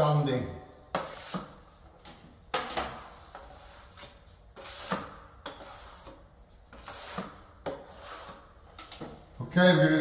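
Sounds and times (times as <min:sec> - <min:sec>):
trowel scraping filler: 0:00.9 - 0:01.8, 0:03.1 - 0:08.7.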